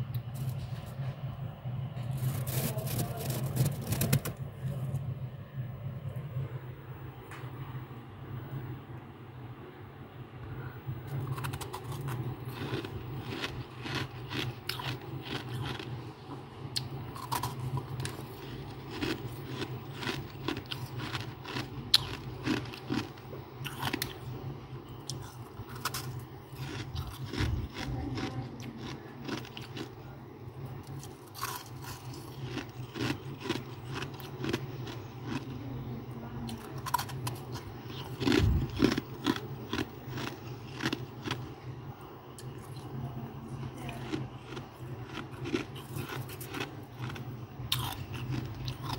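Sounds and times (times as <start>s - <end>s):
steady low hum: 0.0s - 48.9s
frost being chewed: 2.0s - 4.9s, 11.0s - 16.0s, 16.7s - 24.3s, 25.0s - 30.0s, 30.7s - 35.8s, 36.5s - 41.5s, 43.6s - 48.9s.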